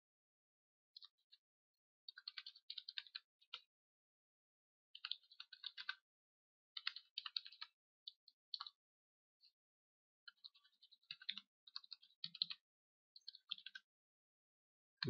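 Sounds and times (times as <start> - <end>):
faint keyboard typing: 2.1 - 3.7, 5.0 - 6.0, 6.8 - 8.8, 10.3 - 12.6, 13.2 - 13.9.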